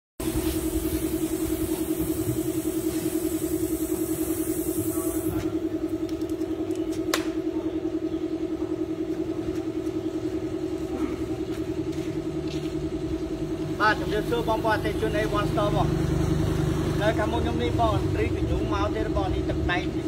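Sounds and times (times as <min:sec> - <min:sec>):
water spraying from hose: 0:00.2 - 0:05.4
pulsing motor hum: 0:00.2 - 0:20.0.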